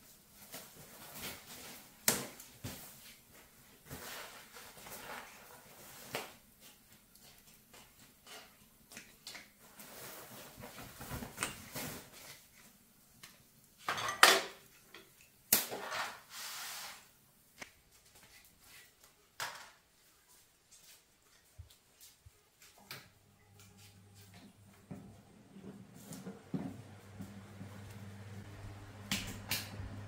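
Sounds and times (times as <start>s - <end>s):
objects knocking and clattering: 13.8s - 16.2s.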